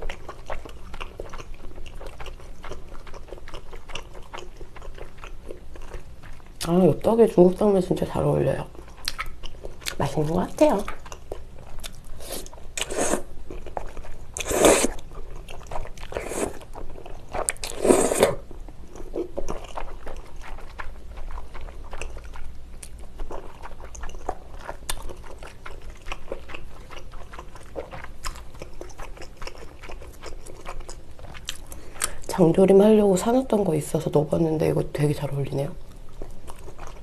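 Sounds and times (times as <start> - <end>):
wet chewing: 0.0 - 33.7, 35.8 - 37.0
slurping noodles: 12.2 - 13.3, 14.4 - 15.0, 16.0 - 16.6, 17.6 - 18.4.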